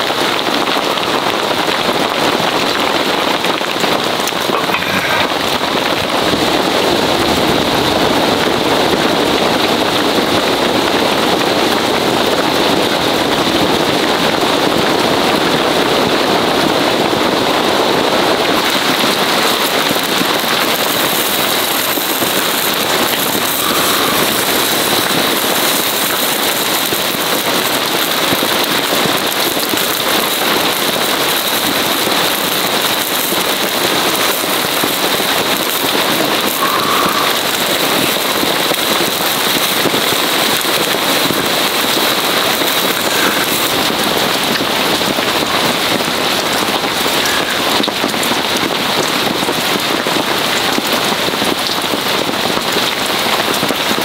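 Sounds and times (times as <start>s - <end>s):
heavy rain on tent fabric: 0.0s - 54.0s
meat sizzling on charcoal grill: 0.1s - 7.9s, 18.4s - 50.6s.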